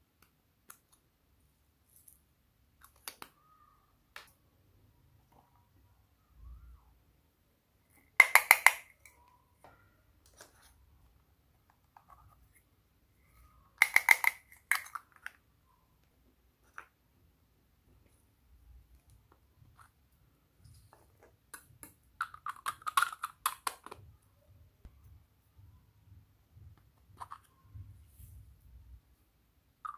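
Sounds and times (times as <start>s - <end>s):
plastic cups and tubes clicking: 8.1s - 9.2s, 13.7s - 15.4s, 21.0s - 24.1s.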